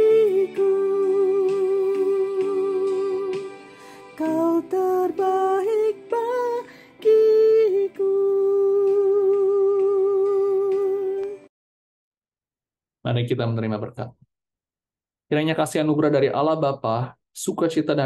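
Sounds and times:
woman singing with vibrato: 0.0 - 11.5.

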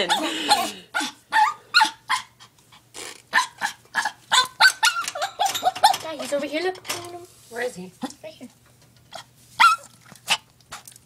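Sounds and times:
small dog yapping: 0.0 - 2.4, 3.3 - 5.9, 9.6 - 10.4.

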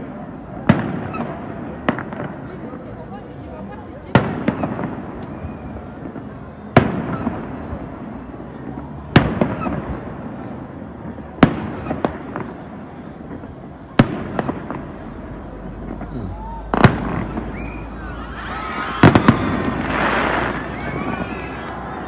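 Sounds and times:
small firework pops: 4.1 - 7.9, 8.6 - 10.2, 11.1 - 15.1, 15.8 - 17.9, 18.7 - 22.0.

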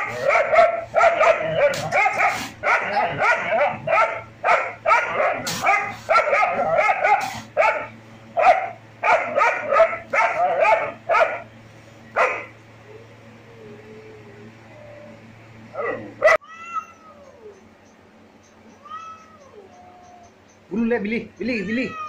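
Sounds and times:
dog barking: 0.0 - 11.5, 12.2 - 12.5.

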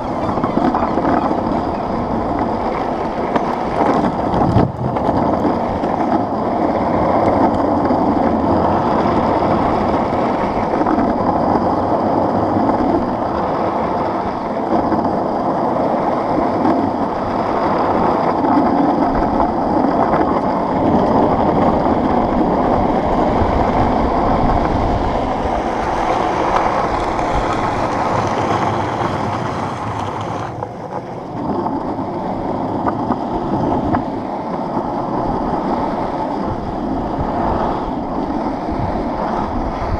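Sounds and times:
longboard wheels rolling on asphalt: 0.0 - 39.9
wind on microphone: 0.0 - 39.9.

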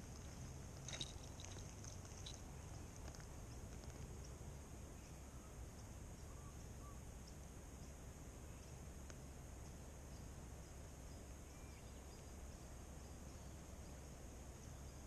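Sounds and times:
faint ticks: 0.0 - 4.4, 7.2 - 10.8
faint chirps: 0.9 - 8.8.

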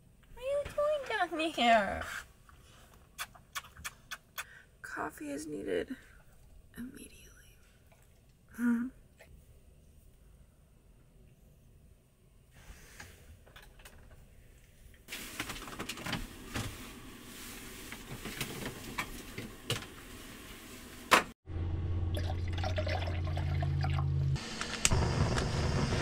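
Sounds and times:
water pouring into container: 22.1 - 24.3.

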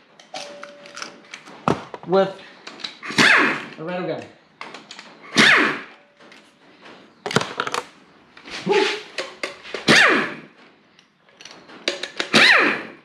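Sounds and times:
impact wrench bursts: 3.0 - 3.8, 5.2 - 5.9, 9.8 - 10.5, 12.2 - 13.0.

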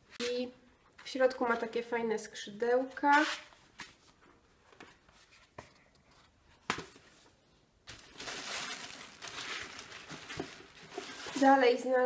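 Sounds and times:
wrapping material crinkling: 7.9 - 12.0.

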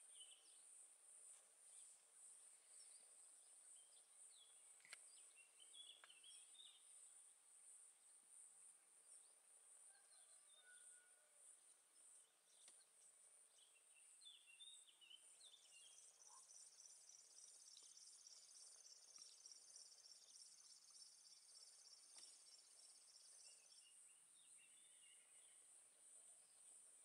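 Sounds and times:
songbird chirping: 0.0 - 27.0
pulsing cricket chirping: 11.4 - 27.0.

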